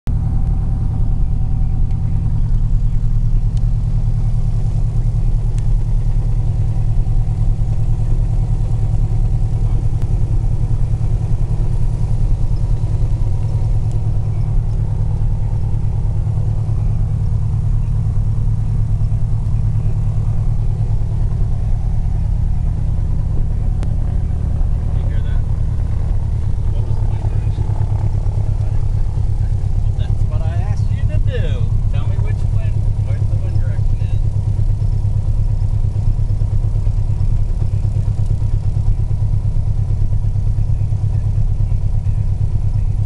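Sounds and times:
light aircraft engine drone: 0:00.1 - 0:43.0.

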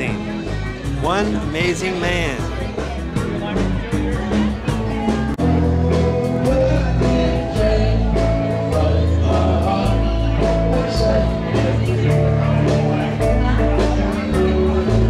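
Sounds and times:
drum kit: 0:00.0 - 0:03.8
bass line: 0:00.0 - 0:12.6, 0:13.2 - 0:15.0
man singing: 0:01.0 - 0:02.5, 0:05.6 - 0:11.8.

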